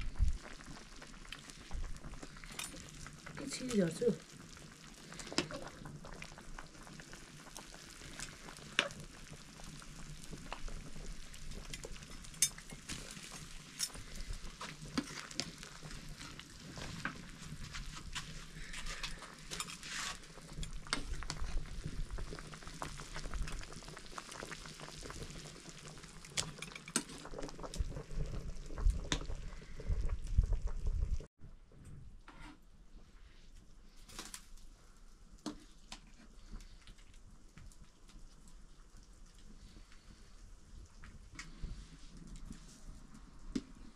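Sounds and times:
water bubbling in a pot: 0.0 - 31.3, 35.2 - 43.9
metal ladle scraping a pot: 18.8 - 20.2.

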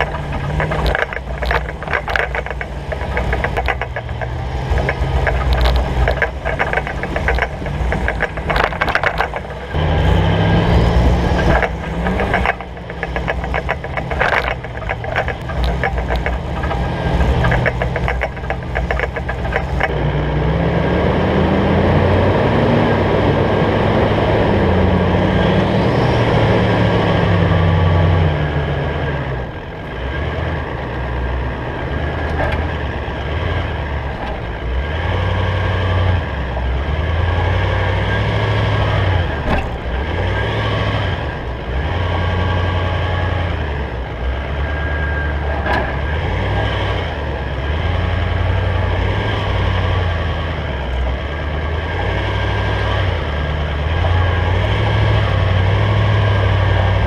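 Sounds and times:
sharp knocks: 0.0 - 20.0
off-road engine climbing: 0.0 - 57.0.

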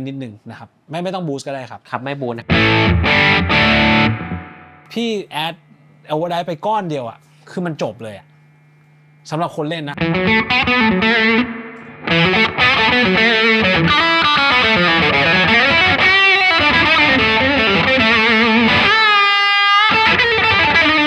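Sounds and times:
overdriven electric guitar lead: 2.5 - 4.9, 10.0 - 21.0.

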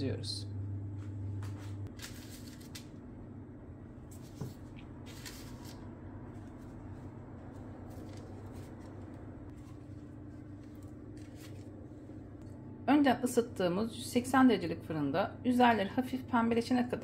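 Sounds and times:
low steady hum: 0.0 - 17.0
handling noises: 4.1 - 12.2
pastry rustling and tapping: 4.1 - 12.4.

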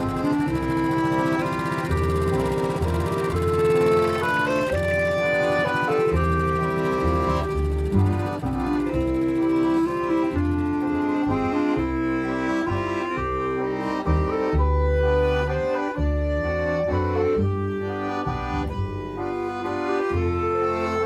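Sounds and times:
instrumental film score: 0.0 - 21.0.

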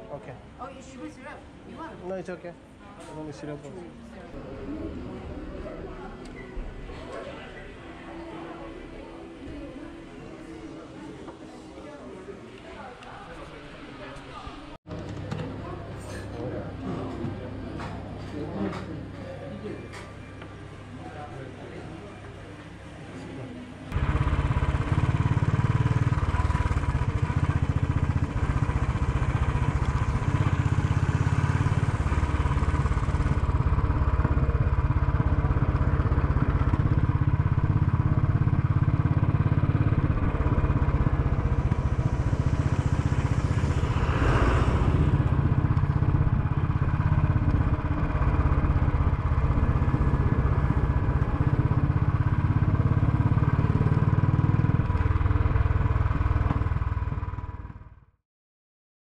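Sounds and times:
motorcycle engine running: 23.9 - 58.2
brief rushing noise: 41.2 - 46.8.

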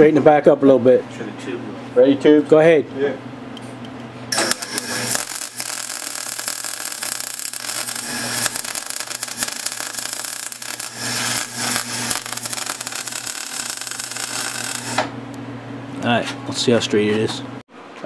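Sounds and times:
welder arc crackling: 4.3 - 15.1.

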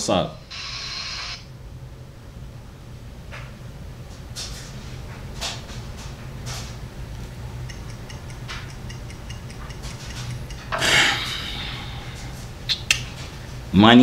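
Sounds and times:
countdown timer ticking: 7.6 - 10.8.

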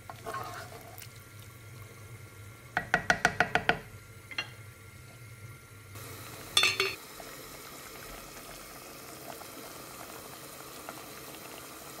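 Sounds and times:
pot lid clanking: 6.6 - 7.0.

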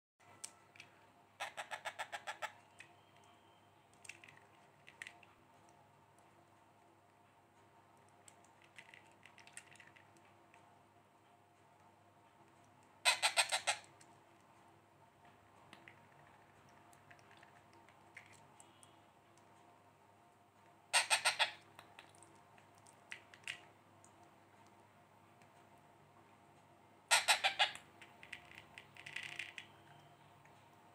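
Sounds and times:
parrot chick squeaking: 1.4 - 2.7, 13.0 - 13.9, 20.9 - 21.6, 27.1 - 29.6.

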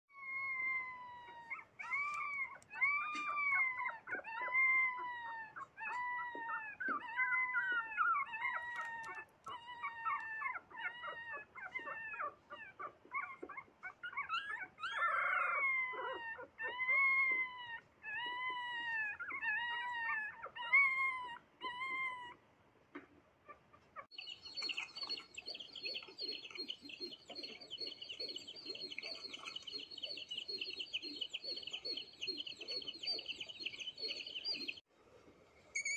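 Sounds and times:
puppies whining: 0.1 - 22.4, 23.5 - 34.9
chicks peeping: 24.2 - 34.8.

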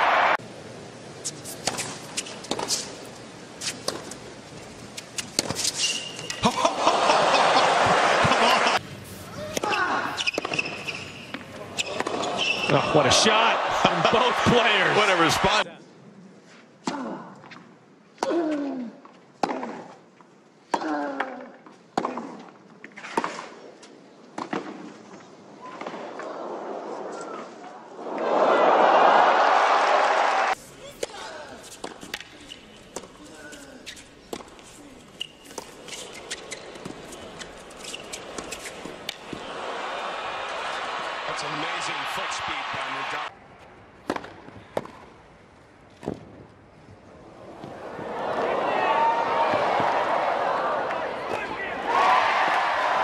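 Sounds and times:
crowd cheering and applauding: 0.0 - 0.4, 6.7 - 8.8, 12.8 - 15.6, 28.0 - 30.6, 39.2 - 43.3, 47.7 - 53.0
tennis shoes squeaking on court: 1.2 - 4.2, 4.9 - 6.4, 9.3 - 13.0, 30.9 - 39.4
tennis ball hit by racket: 1.6 - 2.9, 44.0 - 45.1
tennis ball struck by rackets: 44.0 - 45.1.

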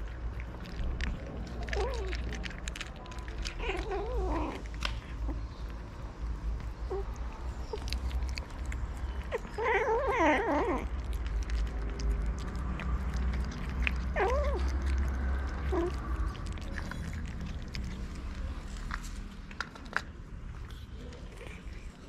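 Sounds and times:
cats eating: 0.0 - 22.0
cat yowling: 3.4 - 4.7, 9.2 - 10.9, 13.1 - 17.2.

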